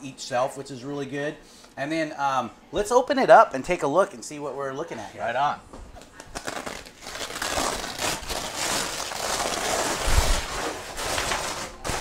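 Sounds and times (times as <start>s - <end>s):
stiff fabric rustling: 7.3s - 12.0s
zippers running down: 7.3s - 12.0s.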